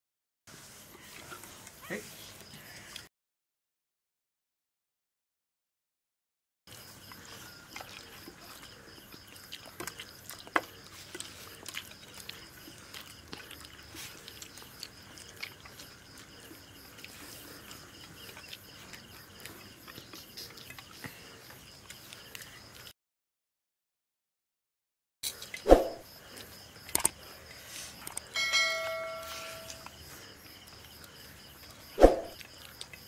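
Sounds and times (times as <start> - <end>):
people chewing food: 0.5 - 3.1, 6.7 - 23.0, 25.2 - 33.0
faint high-pitched tone: 28.4 - 29.9.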